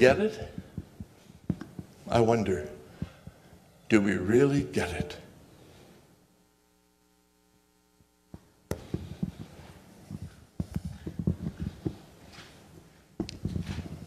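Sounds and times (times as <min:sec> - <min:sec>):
faint electrical hum: 0:00.0 - 0:14.0
microphone handling thumps: 0:00.3 - 0:02.0, 0:08.3 - 0:14.0
footsteps on wooden floor: 0:08.7 - 0:14.0.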